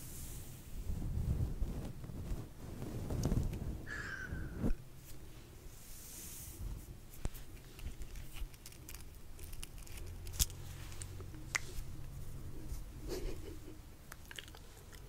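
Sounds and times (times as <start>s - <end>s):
fingers rustling feather: 4.6s - 13.8s.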